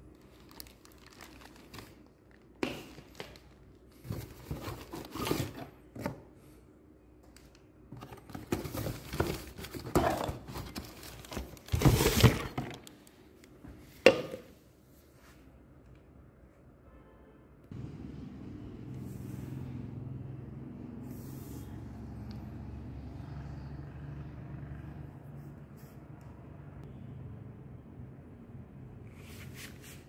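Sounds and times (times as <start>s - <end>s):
plastic bags crinkling: 0.0s - 5.2s, 8.6s - 13.0s.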